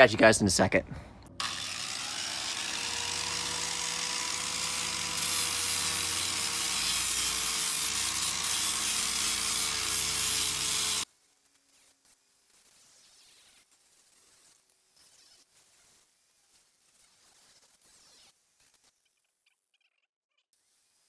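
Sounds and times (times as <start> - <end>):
angle grinder sanding steel: 1.4 - 11.0.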